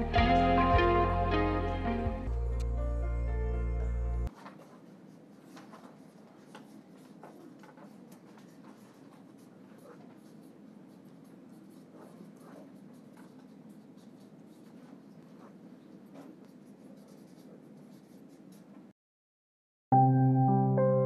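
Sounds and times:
pens scratching on paper: 0:04.3 - 0:18.9.

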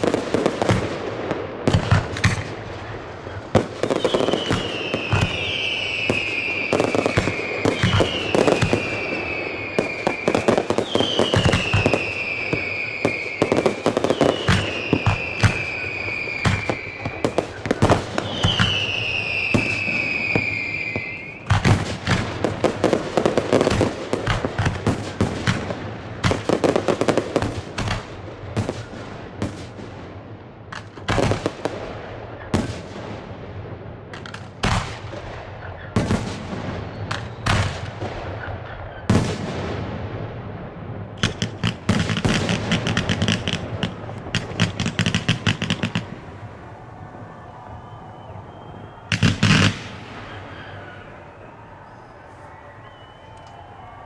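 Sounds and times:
fireworks bangs and crackles: 0:00.0 - 0:54.0
firework whistles falling in pitch: 0:03.8 - 0:21.8, 0:36.7 - 0:39.2, 0:42.0 - 0:54.0.

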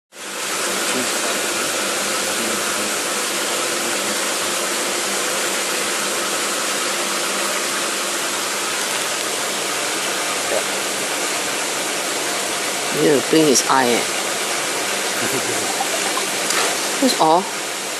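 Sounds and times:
running water: 0:13.9 - 0:17.5
water pump motor hum: 0:14.1 - 0:17.1.

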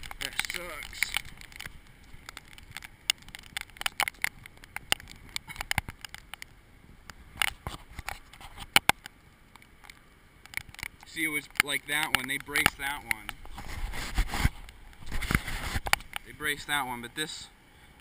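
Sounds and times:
rain and ice pellets ticking: 0:00.0 - 0:13.6
low steady rush: 0:00.0 - 0:18.0.

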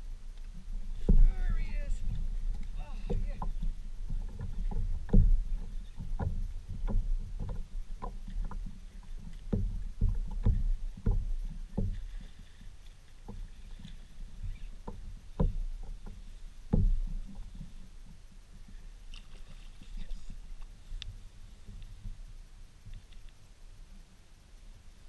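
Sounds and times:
low steady rumble: 0:00.0 - 0:25.0
knocks on kayak hull: 0:01.0 - 0:01.3, 0:02.0 - 0:12.2, 0:14.9 - 0:17.3.

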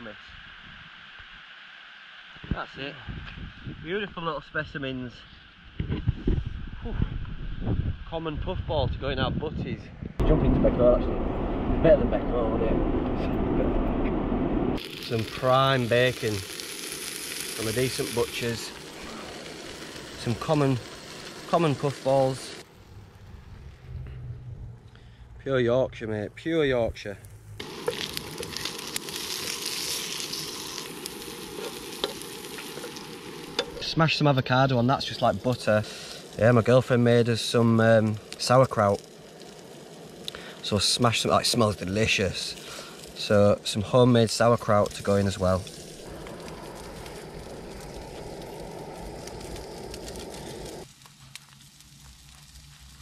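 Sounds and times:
gas stove burner hissing: 0:14.1 - 0:22.7, 0:26.5 - 0:53.0
bacon sizzling in a frying pan: 0:14.8 - 0:22.7, 0:27.6 - 0:53.0
fat popping and crackling: 0:14.8 - 0:23.3, 0:26.9 - 0:53.0.

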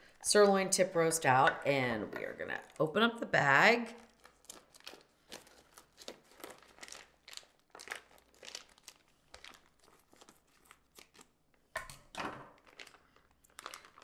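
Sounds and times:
plastic bag crinkling: 0:03.9 - 0:11.4, 0:12.6 - 0:14.0.

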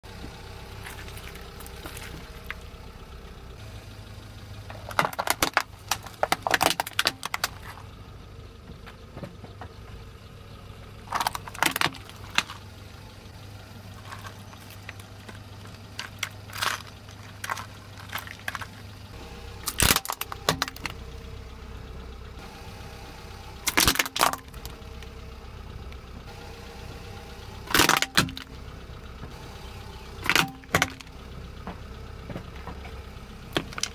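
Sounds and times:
car engine humming: 0:00.0 - 0:33.9
tyre crushing objects: 0:14.0 - 0:18.9.

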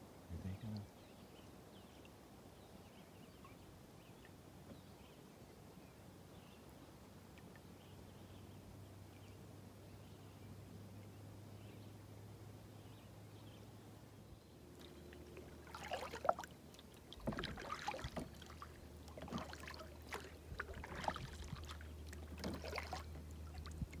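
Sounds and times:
paddle splashing water: 0:14.7 - 0:24.0.

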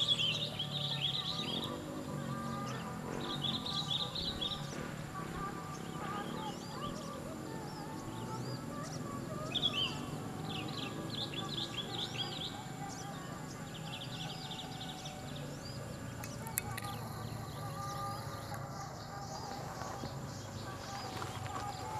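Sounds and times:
small birds chirping: 0:00.0 - 0:21.9
steady background hum: 0:00.0 - 0:21.9
sharp click: 0:16.2 - 0:17.0.

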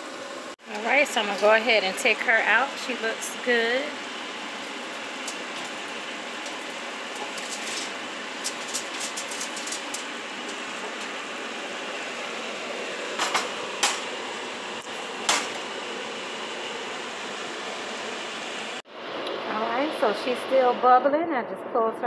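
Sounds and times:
casserole sizzling and bubbling: 0:00.0 - 0:20.6.

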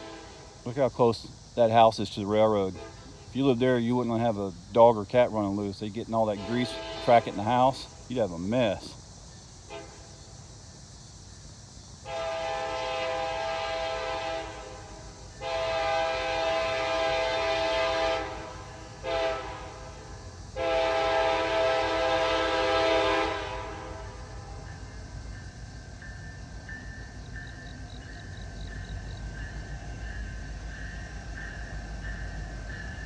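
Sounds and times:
locomotive air horn blasts: 0:00.0 - 0:00.6, 0:02.8 - 0:03.3, 0:06.3 - 0:07.8, 0:09.7 - 0:10.1, 0:12.0 - 0:24.4
low train rumble: 0:00.0 - 0:33.0.

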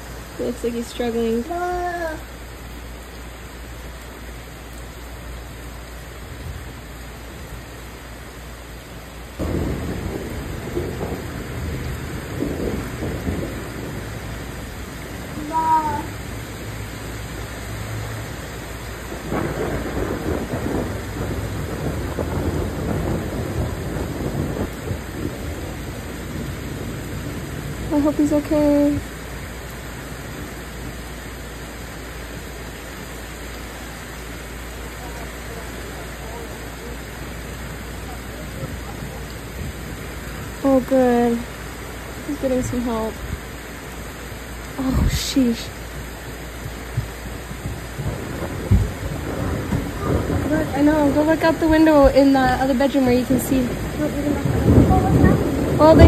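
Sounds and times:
heavy rain hissing: 0:00.0 - 0:56.0
thunder rumbling: 0:09.4 - 0:32.8, 0:33.5 - 0:56.0.

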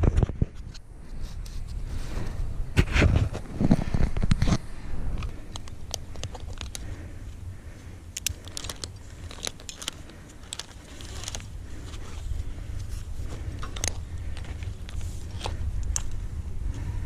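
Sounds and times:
steady low rumble: 0:00.0 - 0:17.0
rope and gloves rustling: 0:00.6 - 0:17.0
carabiners clicking and clinking: 0:05.2 - 0:07.0, 0:08.1 - 0:12.2.

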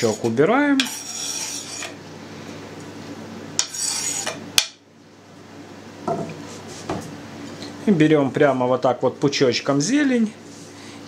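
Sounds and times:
knife scraping cutting board: 0:00.0 - 0:02.0, 0:03.6 - 0:04.4.

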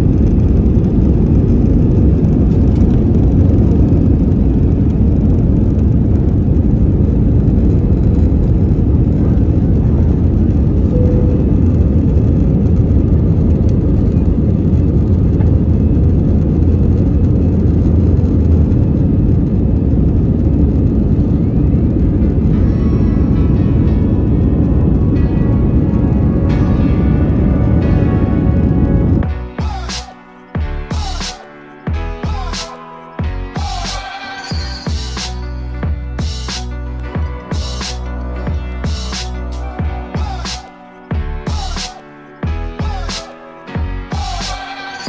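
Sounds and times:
jet engines at high power: 0:00.0 - 0:32.0
loud low rush of air: 0:00.0 - 0:34.0, 0:34.8 - 0:43.2.

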